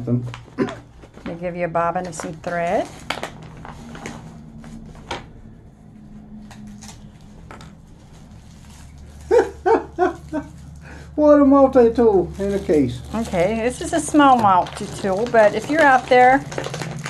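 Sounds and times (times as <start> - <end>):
plastic bags rustling: 0.2 - 17.0.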